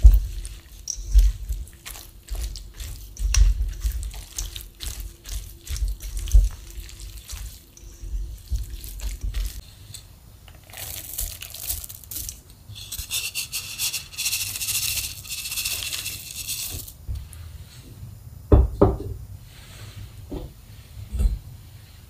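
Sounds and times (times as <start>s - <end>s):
dried kelp pouring with rustling hiss: 0.0s - 9.7s, 10.6s - 17.0s
spatula stirring in steel bowl: 0.0s - 9.7s, 12.7s - 17.0s.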